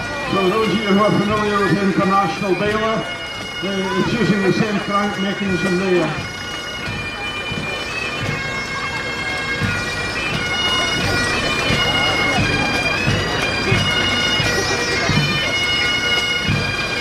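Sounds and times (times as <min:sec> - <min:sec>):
bagpipes playing a tune: 0:00.0 - 0:17.0.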